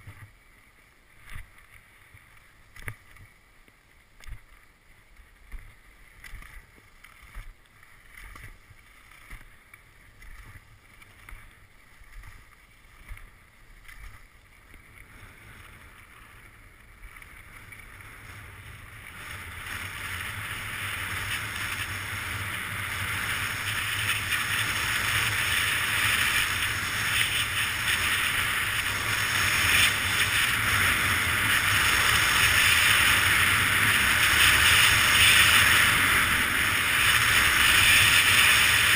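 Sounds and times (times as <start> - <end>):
hiss of snow and rushing air: 10.3 - 38.9.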